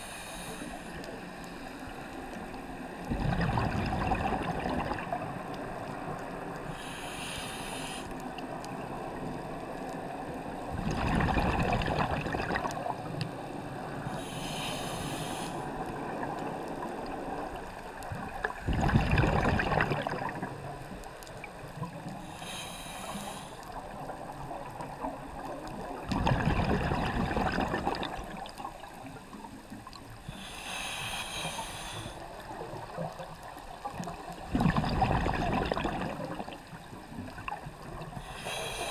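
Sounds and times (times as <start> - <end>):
regulator hiss on inhalation: 0.0 - 0.9, 6.7 - 8.2, 14.1 - 15.7, 22.3 - 23.6, 30.3 - 32.2, 38.2 - 38.9
exhaled bubbles rushing: 3.1 - 5.3, 10.7 - 13.1, 18.2 - 20.6, 25.7 - 28.9, 34.4 - 38.0.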